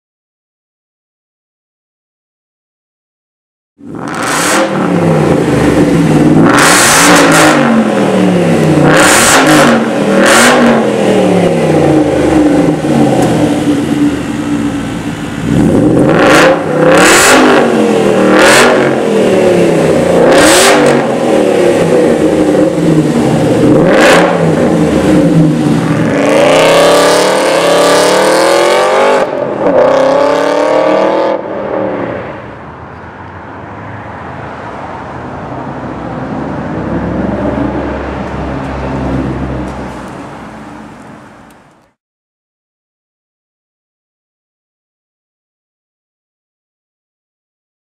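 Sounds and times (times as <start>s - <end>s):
car engine revving: 3.8s - 32.1s.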